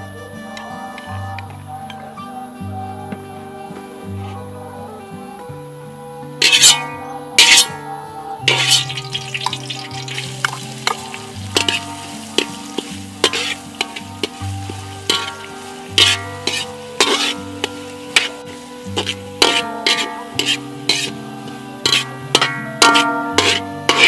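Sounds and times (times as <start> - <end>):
background music: 0.0 - 24.0
herbs sizzling: 0.0 - 24.0
metal ladle scraping a wok: 6.4 - 7.8, 8.5 - 24.0.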